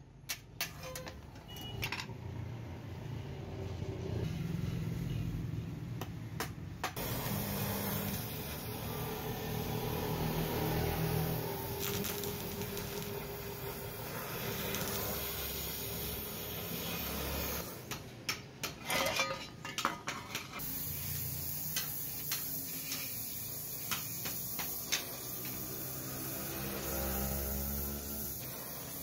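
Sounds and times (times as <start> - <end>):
welding torch hissing: 7.0 - 18.0, 20.6 - 29.0.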